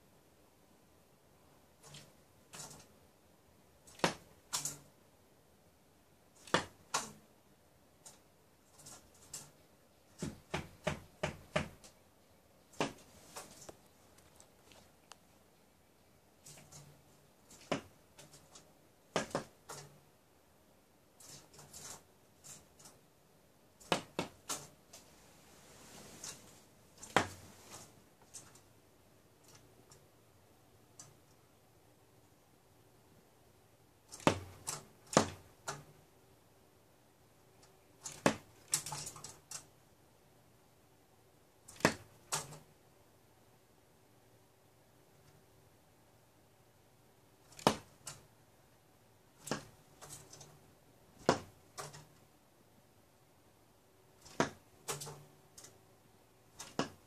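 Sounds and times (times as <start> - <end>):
woodpecker knocking on window: 10.2 - 11.9.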